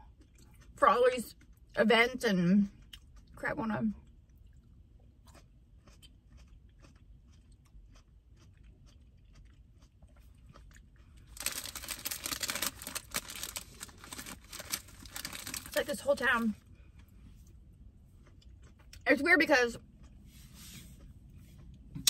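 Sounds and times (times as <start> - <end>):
chewing with mouth clicks: 0.0 - 1.8, 2.6 - 21.9
plastic bag crinkling: 11.3 - 16.5.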